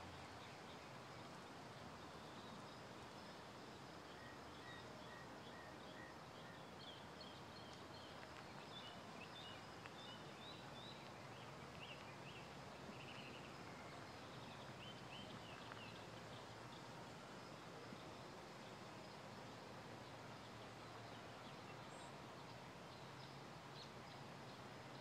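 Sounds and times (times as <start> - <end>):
small birds chirping: 6.5 - 16.9.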